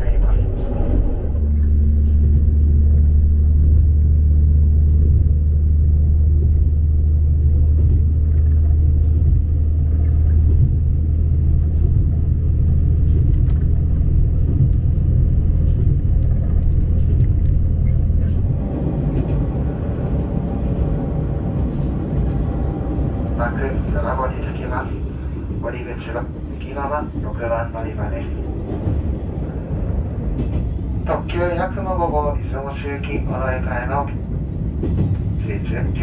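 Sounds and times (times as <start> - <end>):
diesel railcar engine drone: 0.0 - 36.0
train wheels rolling: 4.5 - 32.4.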